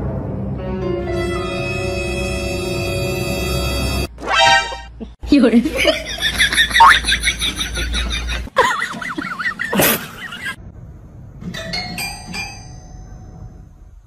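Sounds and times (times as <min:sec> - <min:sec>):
background music: 0:00.0 - 0:04.9.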